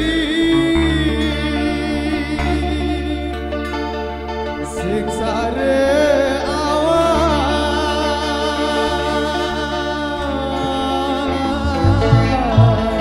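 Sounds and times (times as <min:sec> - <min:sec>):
man singing into microphone: 0:00.0 - 0:03.8, 0:04.7 - 0:13.0
bass: 0:00.0 - 0:13.0
electric guitars: 0:00.0 - 0:13.0
hand drums: 0:11.6 - 0:13.0.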